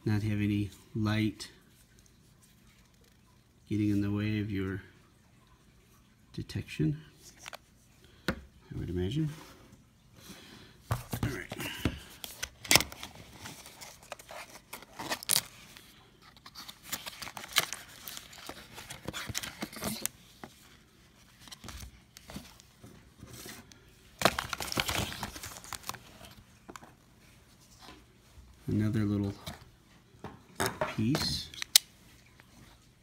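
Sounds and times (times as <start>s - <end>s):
cardboard packaging rustling: 10.9s - 27.9s.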